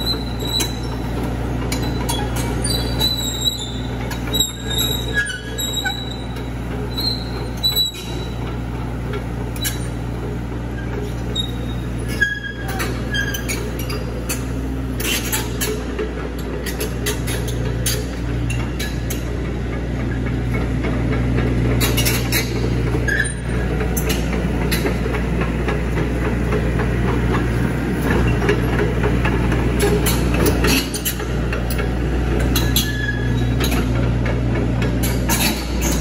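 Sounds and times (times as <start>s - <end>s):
short high squeaks: 0.0s - 1.0s, 1.7s - 8.4s, 10.8s - 14.4s, 15.0s - 15.8s, 21.8s - 24.9s, 32.5s - 33.9s
excavator engine droning: 0.0s - 36.0s.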